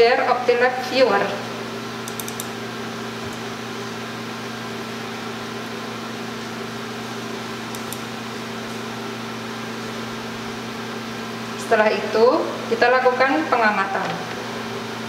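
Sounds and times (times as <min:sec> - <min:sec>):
electrical hum: 0:00.0 - 0:15.0
computer mouse double-click: 0:02.0 - 0:02.5, 0:07.7 - 0:08.0.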